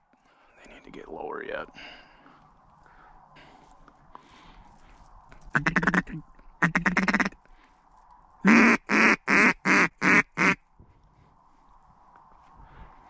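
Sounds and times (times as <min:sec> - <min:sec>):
duck call raspy notes: 0:05.5 - 0:07.4, 0:08.4 - 0:10.6
duck call short loud quacks: 0:05.5 - 0:07.4, 0:08.4 - 0:10.6.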